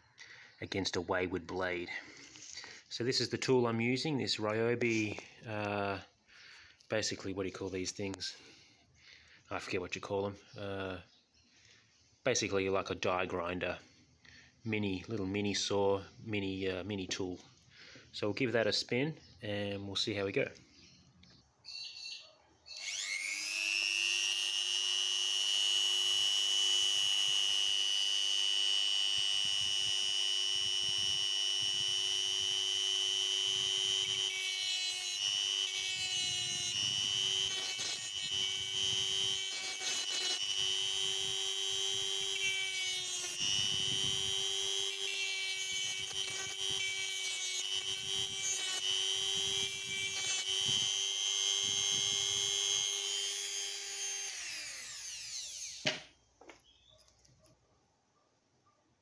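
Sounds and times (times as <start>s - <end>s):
cut-off disc cutting metal: 22.7s - 56.1s
rotary tool whining: 22.7s - 57.5s.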